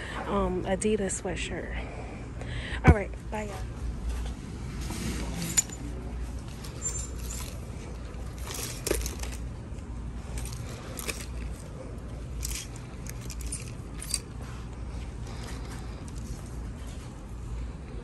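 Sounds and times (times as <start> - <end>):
low hum: 0.0 - 18.0
garments rustling: 5.0 - 16.8
plastic hangers clicking on rack: 6.6 - 9.5.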